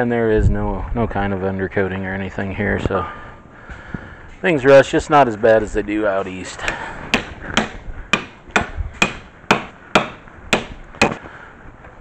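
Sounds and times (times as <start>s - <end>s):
hammer striking metal: 7.1s - 11.2s.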